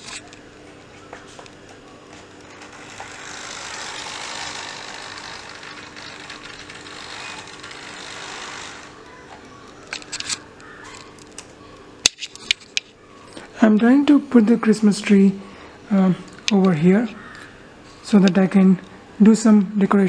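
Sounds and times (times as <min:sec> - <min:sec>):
model train wheels rushing on rails: 0:02.5 - 0:09.0.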